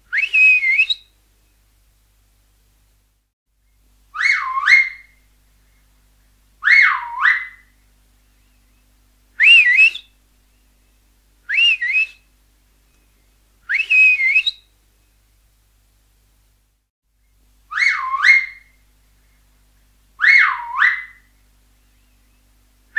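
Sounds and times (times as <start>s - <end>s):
finger whistles: 0.1s - 1.0s, 9.4s - 10.1s, 11.5s - 12.2s, 13.7s - 14.6s.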